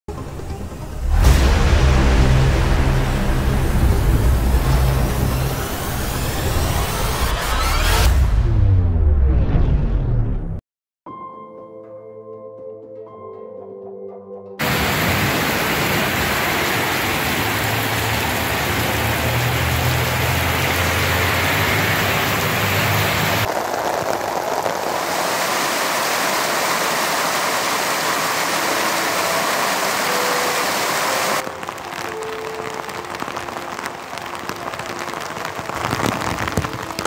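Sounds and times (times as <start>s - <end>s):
heavy rain hissing: 0.6s - 7.4s, 14.6s - 37.0s
low rumble: 0.6s - 10.6s.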